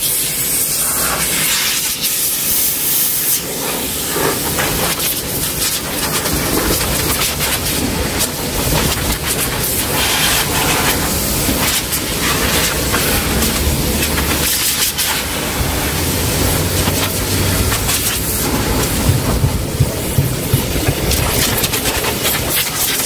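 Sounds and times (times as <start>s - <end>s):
air hose hissing: 0.0s - 23.0s
crackling and fluttering: 16.8s - 23.0s.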